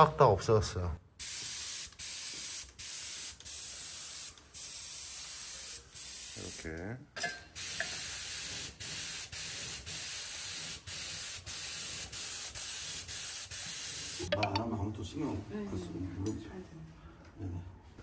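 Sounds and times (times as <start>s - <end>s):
airbrush spray gun hissing: 1.2s - 6.6s, 7.6s - 14.3s.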